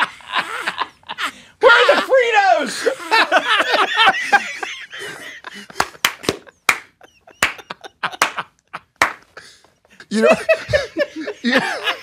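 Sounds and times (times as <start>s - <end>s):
laughter: 0.0s - 2.1s, 2.7s - 12.0s.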